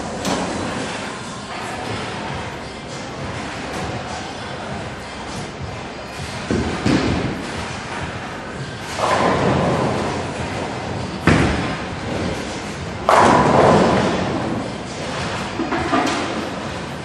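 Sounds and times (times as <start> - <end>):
bowling pins crashing: 8.9 - 17.0
bowling ball thudding on lane: 13.0 - 16.6.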